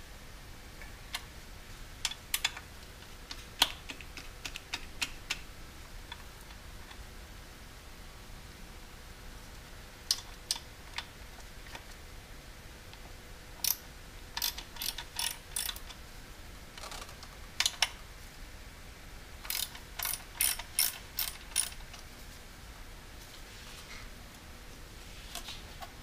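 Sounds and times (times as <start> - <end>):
ratchet wrench clicking: 13.6 - 13.8, 14.4 - 16.0, 19.4 - 21.8.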